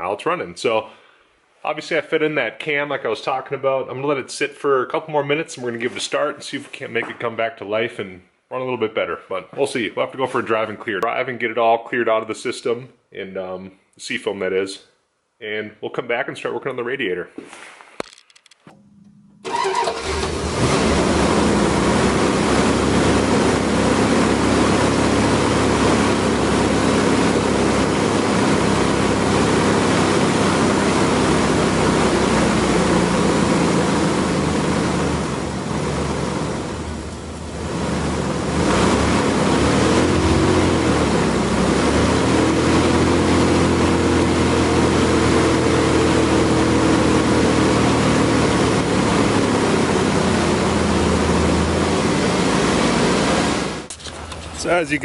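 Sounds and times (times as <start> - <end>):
car engine starting and revving: 18.7 - 54.9.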